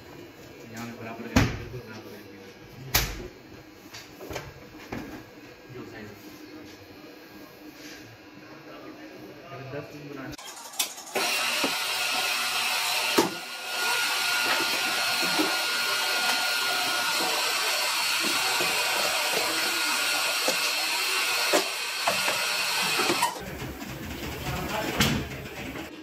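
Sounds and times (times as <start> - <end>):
printing press hissing: 10.4 - 26.0.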